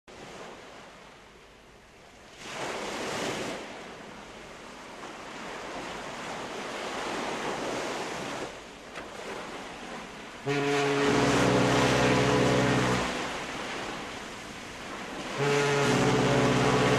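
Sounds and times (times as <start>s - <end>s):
water sloshing against stone and hulls: 4.7s - 16.9s.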